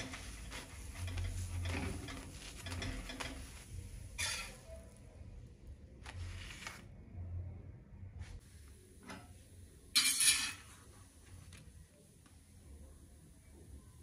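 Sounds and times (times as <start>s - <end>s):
metal spatula scraping on a pan: 0.0s - 4.8s, 10.0s - 10.9s.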